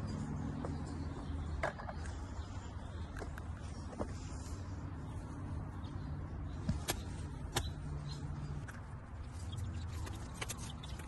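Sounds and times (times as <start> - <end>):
gloved hands working in soil: 6.5 - 11.0.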